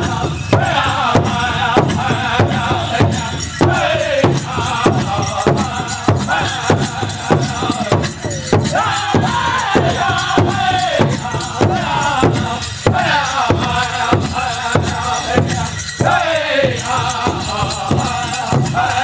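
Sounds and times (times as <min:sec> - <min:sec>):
group singing high voices: 0:00.0 - 0:19.0
large drum steady beat: 0:00.0 - 0:19.0.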